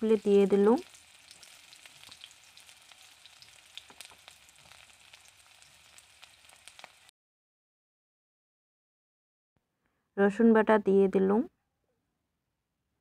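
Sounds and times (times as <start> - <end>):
onions sizzling in oil: 0.0 - 7.1.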